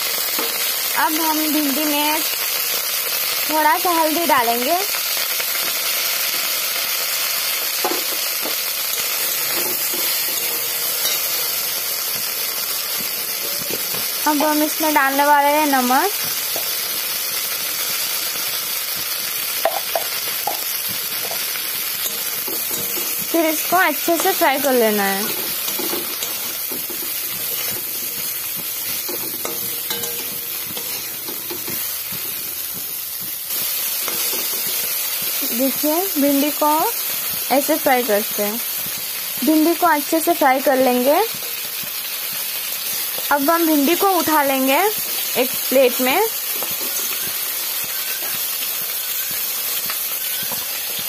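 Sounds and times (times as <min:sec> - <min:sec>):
okra sizzling in hot oil: 0:00.0 - 0:51.0
spatula scraping a metal pan: 0:21.2 - 0:32.9, 0:33.5 - 0:35.3.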